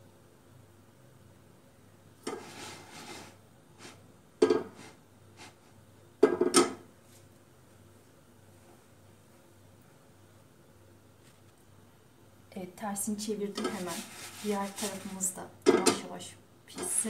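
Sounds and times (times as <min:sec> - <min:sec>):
frying pan scraping: 0:02.2 - 0:05.6, 0:13.5 - 0:16.1
pan knocking on hob grate: 0:04.4 - 0:04.8, 0:06.2 - 0:06.8.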